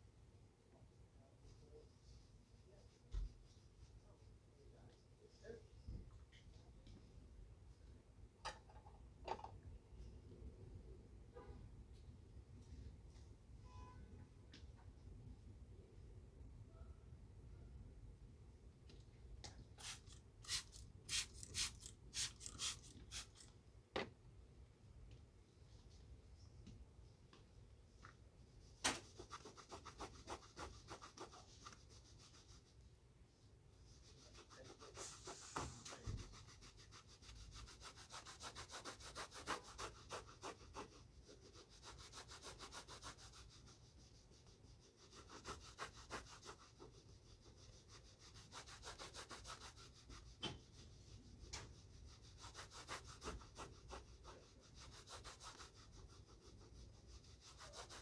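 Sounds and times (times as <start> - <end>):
shoe buffing rubbing strokes: 34.2 - 40.9.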